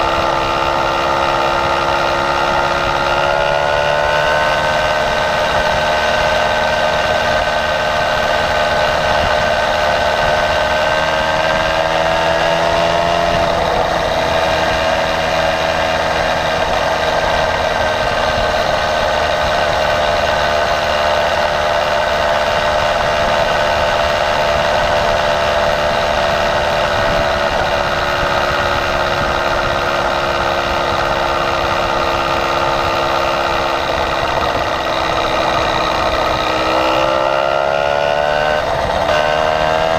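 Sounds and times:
small engine running: 0.0 - 39.9.

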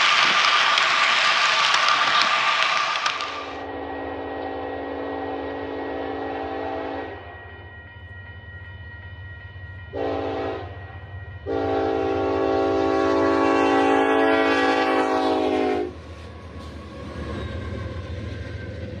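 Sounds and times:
multi-chime horn blasts: 9.9 - 15.8.

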